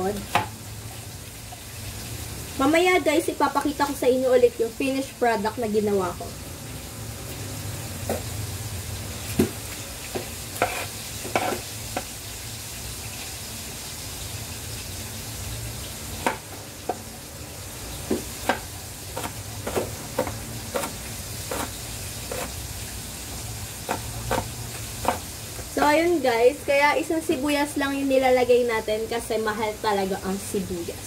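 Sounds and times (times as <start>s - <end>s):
knife chopping on cutting board: 9.3s - 12.1s, 16.2s - 17.0s, 18.1s - 21.7s, 22.3s - 22.5s, 23.8s - 25.3s.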